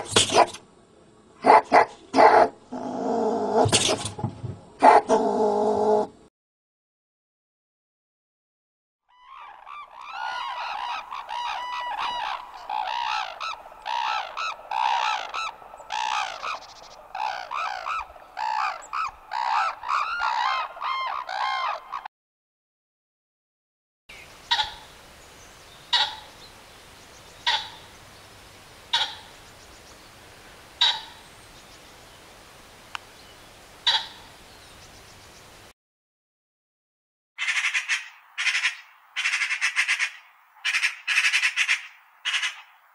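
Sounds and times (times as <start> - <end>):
cranes calling: 9.1 - 22.1, 24.4 - 24.9, 25.8 - 26.5, 27.4 - 28.0, 28.9 - 29.4, 30.7 - 31.2, 33.8 - 34.3, 37.4 - 42.7
pheasant short sharp calls: 30.8 - 31.2.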